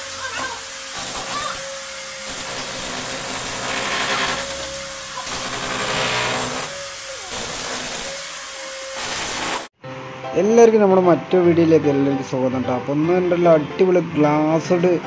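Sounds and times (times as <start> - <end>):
demolition hammer chipping tiles: 0.0 - 9.7.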